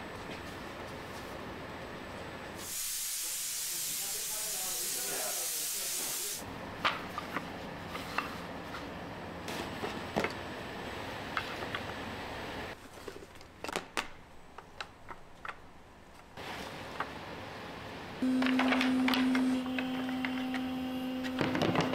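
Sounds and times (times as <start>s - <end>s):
steady low hum: 16.8s - 21.8s.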